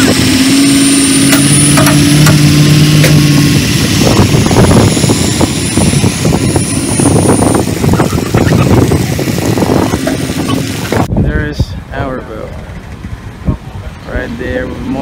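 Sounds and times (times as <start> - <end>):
pickup truck engine droning: 0.0 - 11.2, 11.8 - 15.0
water rushing and splashing: 7.2 - 11.1.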